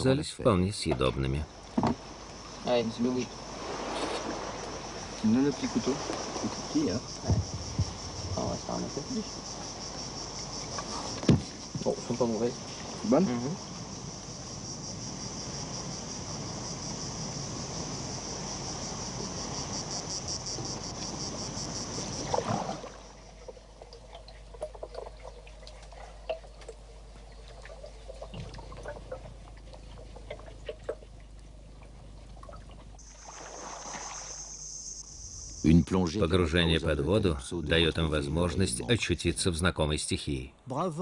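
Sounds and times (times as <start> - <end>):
high insect chorus: 0.0 - 32.3, 32.9 - 41.0
trickling water: 0.0 - 39.0
small drips and clicks: 23.2 - 33.0.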